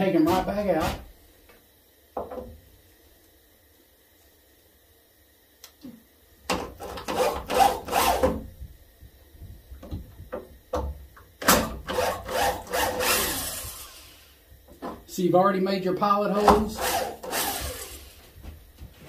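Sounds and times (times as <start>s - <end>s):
cordless drill grinding screws: 7.0s - 8.3s, 11.8s - 14.2s, 16.4s - 18.2s.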